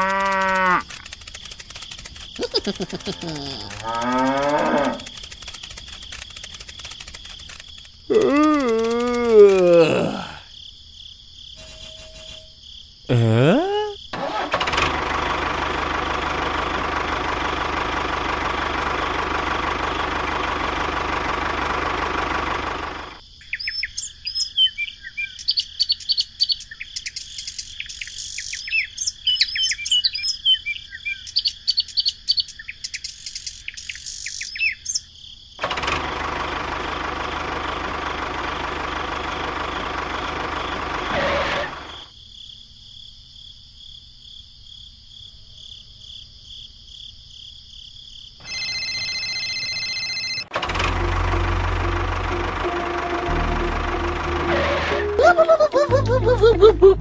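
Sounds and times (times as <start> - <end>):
small birds chirping: 0.0 - 4.0, 4.9 - 9.4, 23.4 - 35.1
tractor engine running: 0.0 - 9.6, 14.2 - 23.2, 35.6 - 42.1, 48.4 - 57.0.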